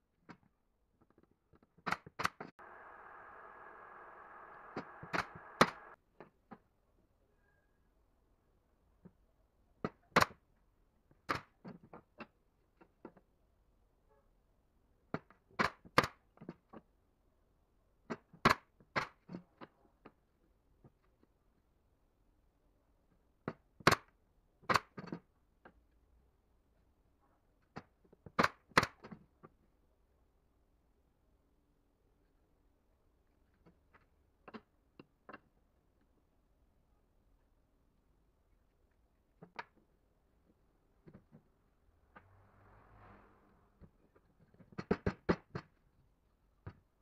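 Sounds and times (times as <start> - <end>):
faint steady hum: 2.6 - 6.0.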